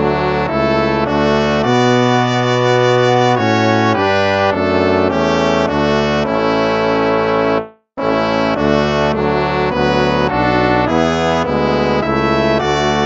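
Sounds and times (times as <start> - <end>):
brass hymn chords: 0.0 - 13.0.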